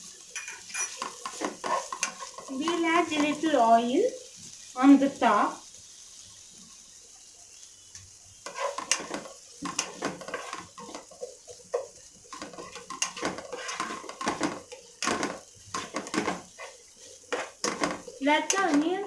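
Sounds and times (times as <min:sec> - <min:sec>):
onions sizzling in oil: 0:00.0 - 0:19.0
spatula scraping a pan: 0:00.1 - 0:03.6, 0:08.4 - 0:19.0.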